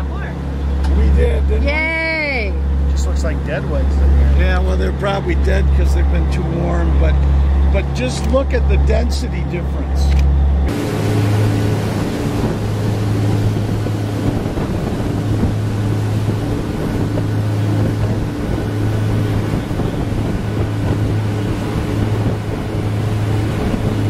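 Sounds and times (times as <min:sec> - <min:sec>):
churning wake rushing: 0:00.0 - 0:24.0
ship engine humming: 0:00.0 - 0:24.0
wind on microphone: 0:04.8 - 0:24.0.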